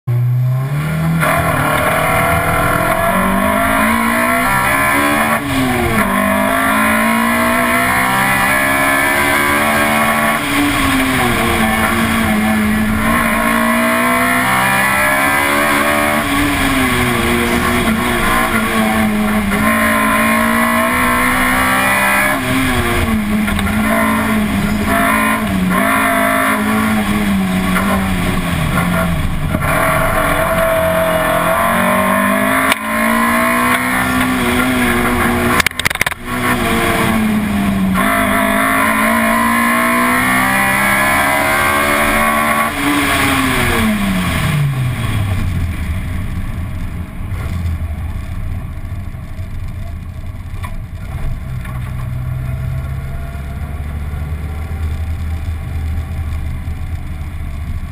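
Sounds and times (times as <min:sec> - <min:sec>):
car engine revving hard: 0:00.1 - 0:46.2
road noise: 0:00.1 - 0:57.9.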